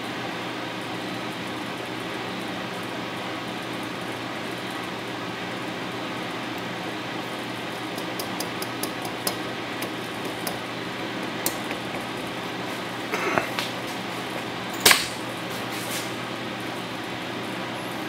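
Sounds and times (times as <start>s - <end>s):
sharp click: 14.8s - 15.2s.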